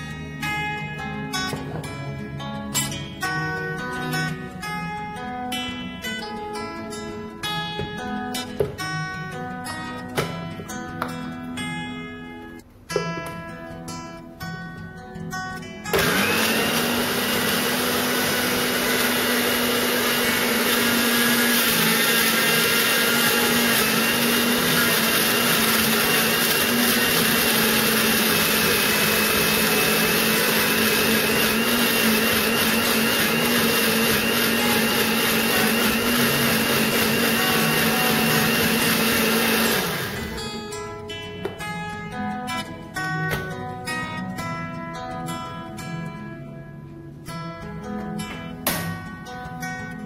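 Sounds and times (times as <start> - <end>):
blender motor grinding: 15.9 - 40.5.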